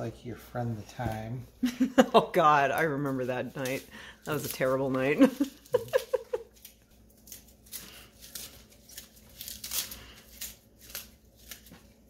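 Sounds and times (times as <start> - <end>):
kale leaves ripping and rustling: 3.6 - 12.0.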